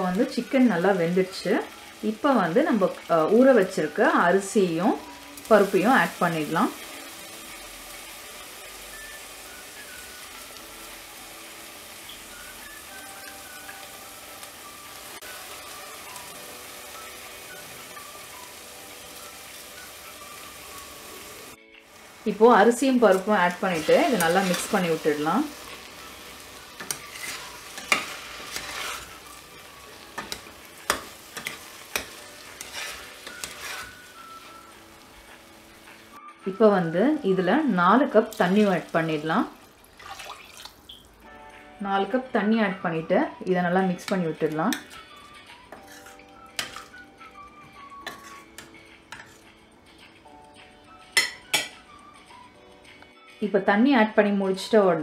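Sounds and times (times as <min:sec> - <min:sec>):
food sizzling in a pan: 0:00.0 - 0:49.6, 0:50.6 - 0:52.3
metal spoon scraping pot: 0:26.8 - 0:29.1, 0:30.2 - 0:34.0, 0:45.7 - 0:46.9, 0:48.0 - 0:48.5.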